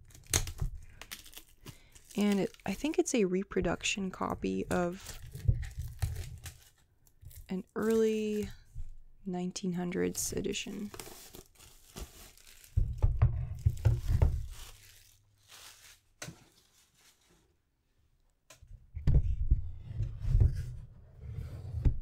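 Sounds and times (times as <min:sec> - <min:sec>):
plastic shrink-wrap crinkling and tearing: 0:00.0 - 0:03.1, 0:04.2 - 0:08.6, 0:10.6 - 0:17.4.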